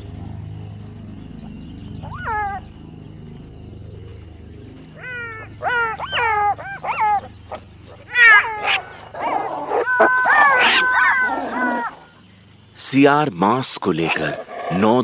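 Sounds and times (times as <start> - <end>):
jackals yelping: 2.0 - 2.8, 5.0 - 12.3, 13.9 - 15.0.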